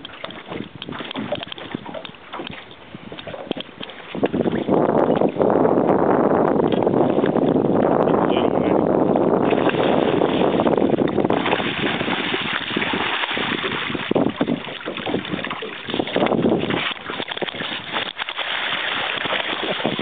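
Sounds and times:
wind buffeting microphone: 0.0s - 20.0s
fish splashing in water: 9.4s - 20.0s.

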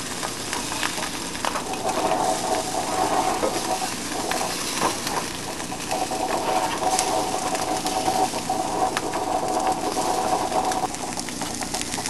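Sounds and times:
eggs sizzling in a frying pan: 0.0s - 12.0s
pan knocking and scraping on burner: 1.6s - 10.9s.

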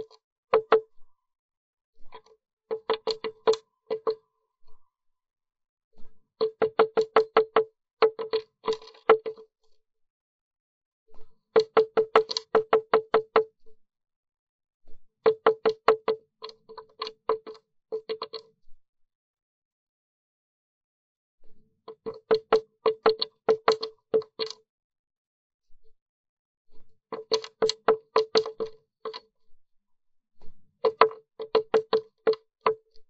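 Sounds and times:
bird pecking on wood: 2.7s - 4.1s, 6.4s - 9.4s, 11.6s - 13.4s, 22.0s - 24.5s, 27.1s - 29.2s, 30.9s - 32.8s.

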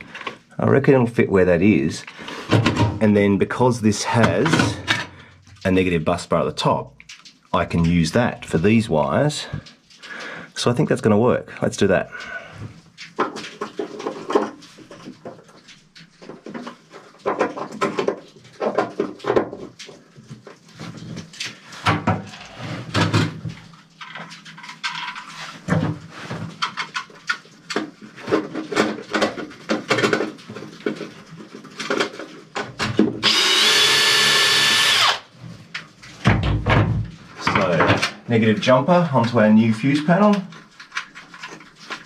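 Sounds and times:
cordless drill running: 33.2s - 35.3s.

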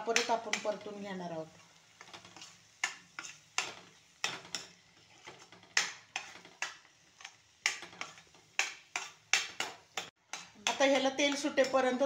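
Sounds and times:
spatula scraping a steel pan: 2.0s - 12.0s.

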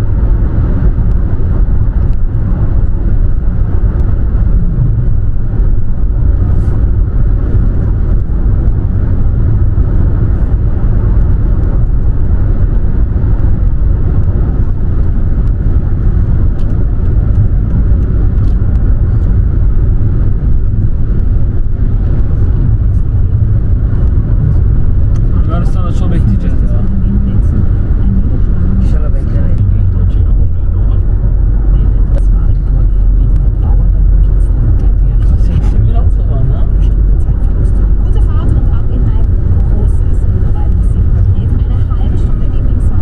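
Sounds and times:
car road and engine rumble: 0.0s - 43.0s.

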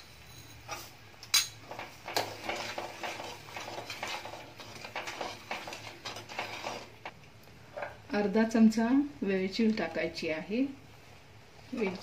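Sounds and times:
spoon scraping pan: 0.0s - 7.2s.

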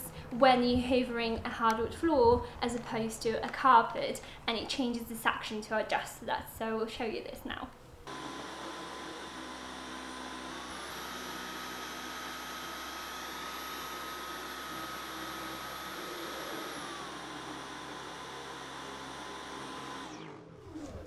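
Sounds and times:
vacuum cleaner motor whine: 8.0s - 21.0s.

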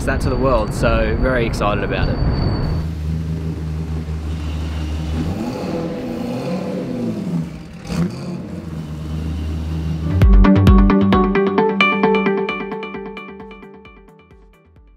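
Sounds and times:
engine running at low revs: 2.9s - 10.2s.

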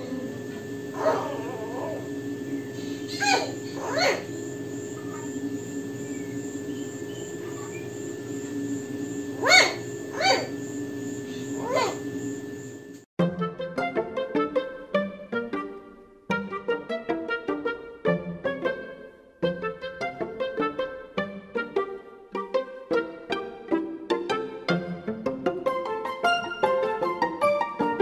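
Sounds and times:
dog whining: 0.0s - 5.5s, 9.3s - 10.6s, 11.2s - 12.2s
steady low hum: 0.0s - 13.1s.

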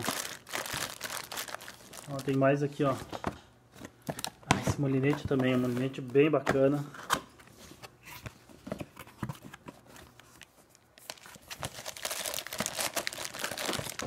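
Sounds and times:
plastic bag crinkling: 0.0s - 2.5s, 11.0s - 14.0s.

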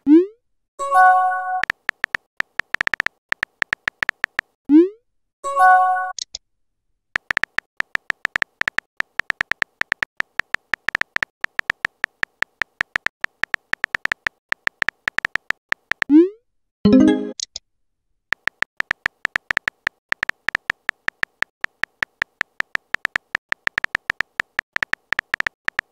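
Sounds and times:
phone keyboard typing clicks: 1.6s - 4.6s, 7.2s - 16.1s, 18.3s - 25.9s.

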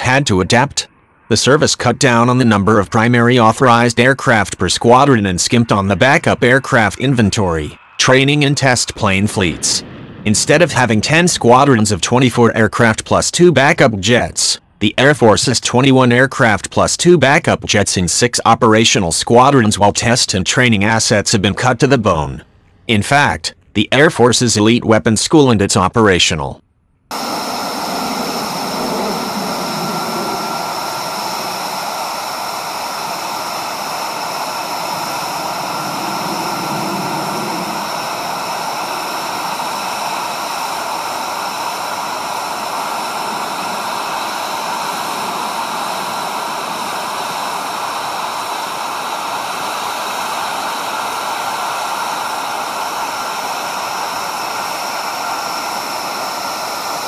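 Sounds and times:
high whining tones: 0.0s - 12.6s, 27.1s - 57.0s
rushing jet noise: 0.0s - 13.0s, 27.1s - 57.0s.

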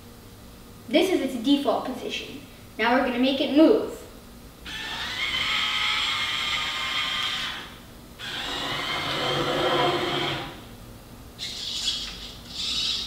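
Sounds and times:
robot electric motors whirring: 4.7s - 10.6s.

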